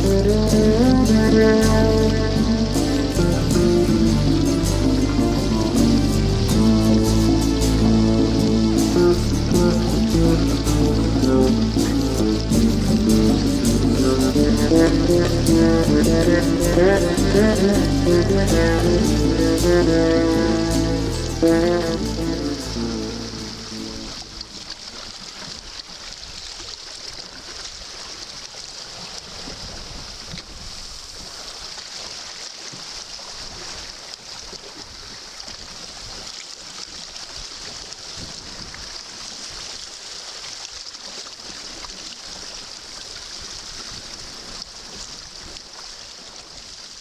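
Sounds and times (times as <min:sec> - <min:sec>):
wind rumble on microphone: 0:00.0 - 0:24.7, 0:29.2 - 0:31.3, 0:38.1 - 0:39.0
water splashing along hull: 0:00.0 - 0:47.0.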